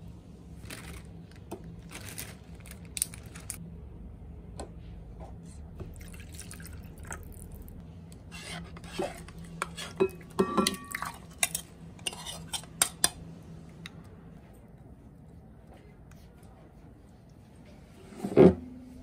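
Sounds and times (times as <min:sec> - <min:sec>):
steady low hum: 0:00.0 - 0:19.0
cutlery clinking on dishes: 0:10.0 - 0:13.2.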